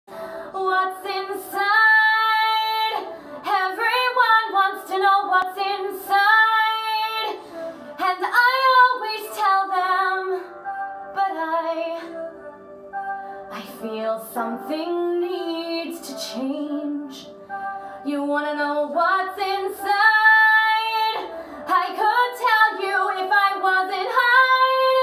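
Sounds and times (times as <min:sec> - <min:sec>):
woman singing: 0:00.5 - 0:07.4, 0:08.0 - 0:12.3, 0:13.5 - 0:17.4, 0:18.0 - 0:25.0.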